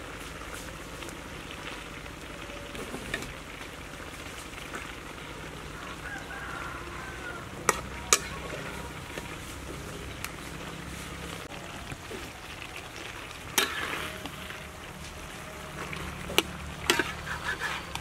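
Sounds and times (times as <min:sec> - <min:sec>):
greens sizzling in a wok: 0:00.0 - 0:18.0
metal spatula striking wok: 0:07.7 - 0:08.5.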